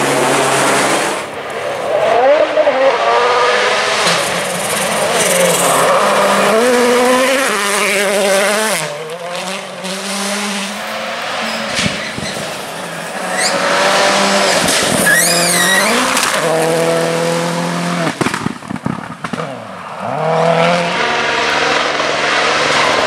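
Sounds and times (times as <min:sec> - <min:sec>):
rally car engine revving: 0:00.0 - 0:23.0
tyres sliding on gravel: 0:10.6 - 0:17.5.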